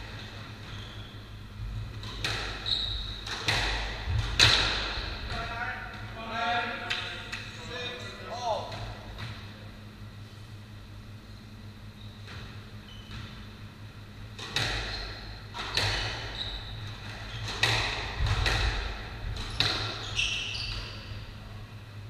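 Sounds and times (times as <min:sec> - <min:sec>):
shoe squeaks on wooden floor: 0:00.6 - 0:01.2, 0:02.6 - 0:03.2, 0:12.0 - 0:13.2, 0:14.8 - 0:17.5, 0:19.5 - 0:21.2
squash ball hits echoing: 0:01.9 - 0:05.6, 0:14.4 - 0:16.4, 0:17.0 - 0:20.0.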